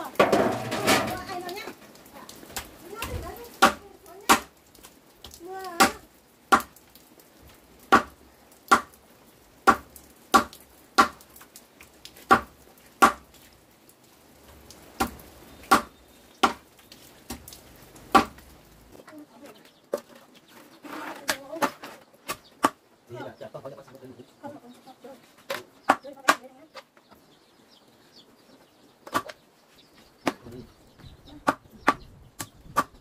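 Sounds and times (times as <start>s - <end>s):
blade chopping wood: 3.6s - 4.5s, 9.6s - 11.2s, 12.3s - 13.2s, 15.0s - 16.6s, 18.1s - 18.4s.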